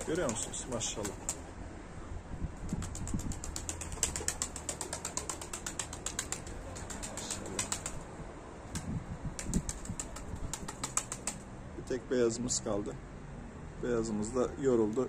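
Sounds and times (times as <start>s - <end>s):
pigeon wings clattering: 0.0s - 1.5s, 2.7s - 8.1s, 8.7s - 11.4s
low wind rumble: 0.0s - 12.0s.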